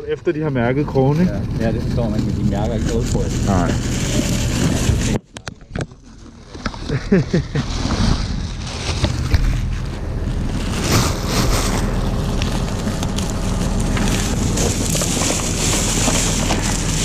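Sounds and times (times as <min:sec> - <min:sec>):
boat engine running: 0:00.0 - 0:06.9, 0:07.7 - 0:17.0
wind buffeting microphone: 0:00.9 - 0:05.2, 0:07.8 - 0:17.0
plastic bag rustling: 0:01.0 - 0:17.0.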